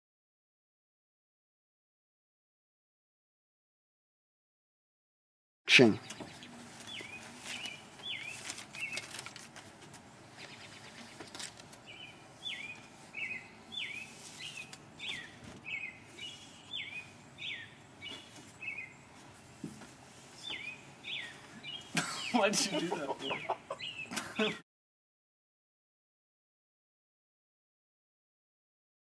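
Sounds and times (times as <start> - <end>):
songbird chirping: 5.8 - 9.4, 10.0 - 24.6.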